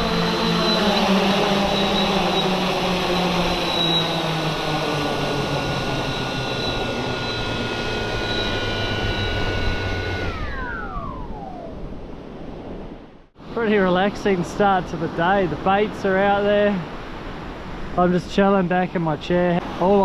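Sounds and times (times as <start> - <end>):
drone propellers whirring: 0.0 - 13.6.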